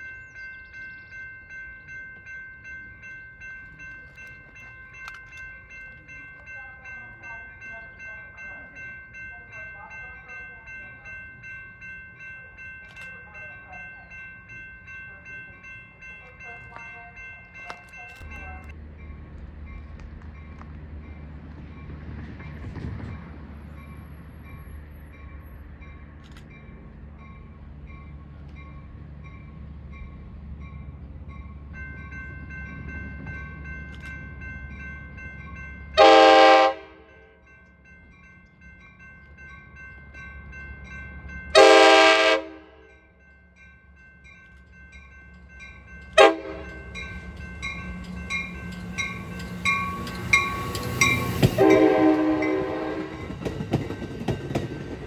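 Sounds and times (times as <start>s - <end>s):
crossing bell ringing: 0.0s - 55.0s
train wheels clicking on rails: 16.2s - 27.5s, 44.2s - 55.0s
train air horn blasts: 36.0s - 37.1s, 41.6s - 42.8s, 46.2s - 46.6s, 51.6s - 53.2s.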